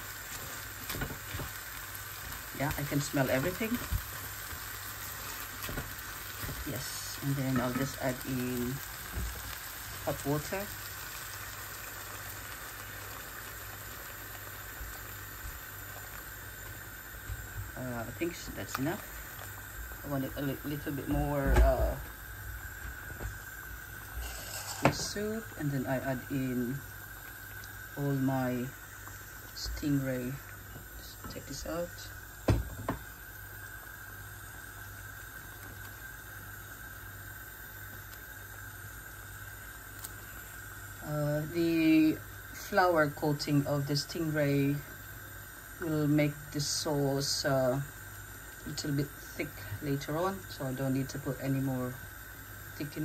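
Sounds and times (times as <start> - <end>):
gas hob hissing: 0.0 - 53.0
sauce simmering bubbles: 0.0 - 53.0
water pouring into bubbling sauce: 8.1 - 17.8, 26.4 - 29.6.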